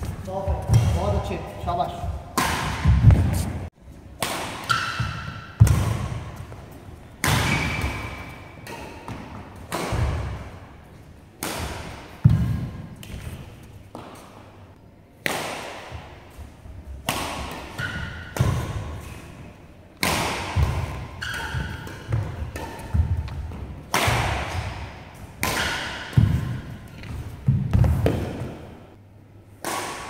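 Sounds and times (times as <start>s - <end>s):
shuttlecock struck by rackets: 2.3s - 3.5s, 4.2s - 6.2s, 7.2s - 10.5s, 11.4s - 13.3s, 15.2s - 16.1s, 17.0s - 18.9s, 20.0s - 28.7s, 29.6s - 30.0s.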